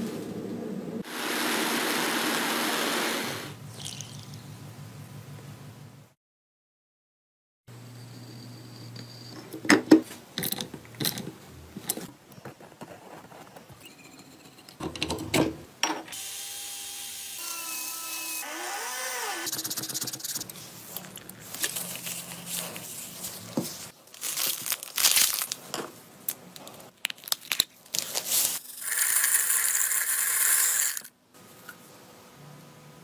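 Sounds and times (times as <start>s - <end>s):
loud steady hiss: 1.0s - 3.6s.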